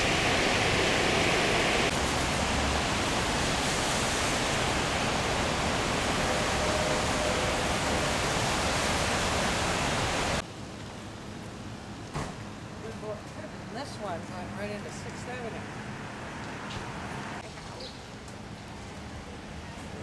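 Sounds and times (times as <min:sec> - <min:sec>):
floodwater rushing through channel: 0:00.0 - 0:10.4.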